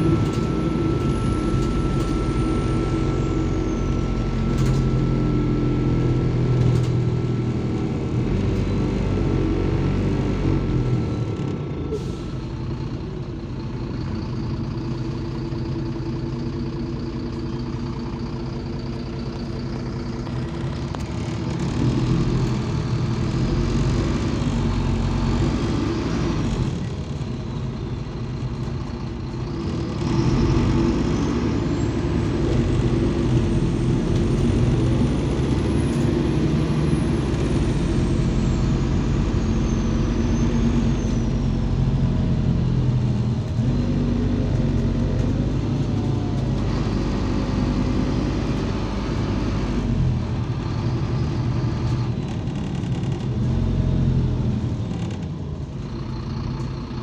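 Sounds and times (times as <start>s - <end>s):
bus diesel engine: 0.0s - 57.0s.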